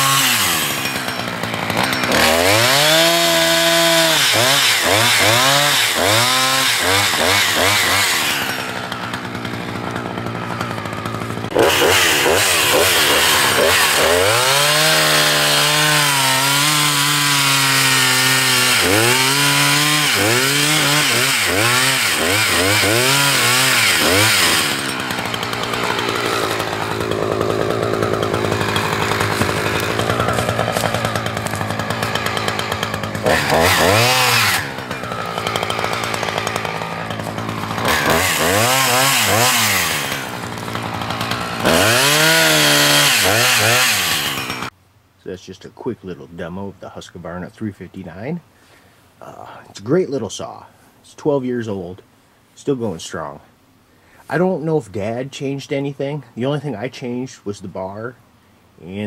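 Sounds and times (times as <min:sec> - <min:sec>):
chainsaw revving and idling: 0:00.0 - 0:44.8.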